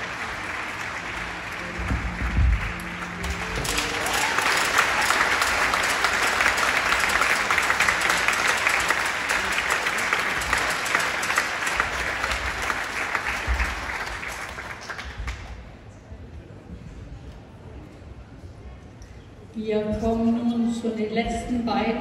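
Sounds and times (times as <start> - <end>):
audience applauding: 0.0 - 15.8.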